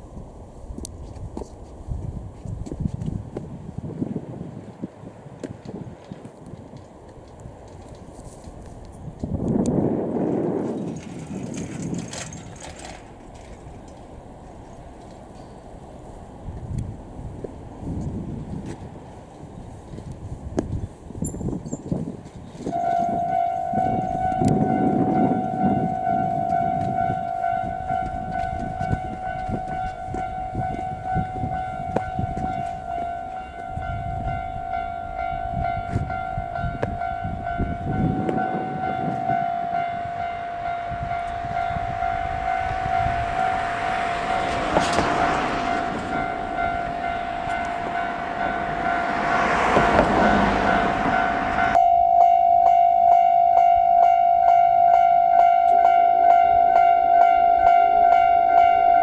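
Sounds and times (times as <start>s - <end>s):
rail rumble: 0.0s - 59.0s
traffic: 0.0s - 59.0s
level-crossing alarm ringing: 22.7s - 59.0s
broad rushing noise: 37.2s - 51.8s.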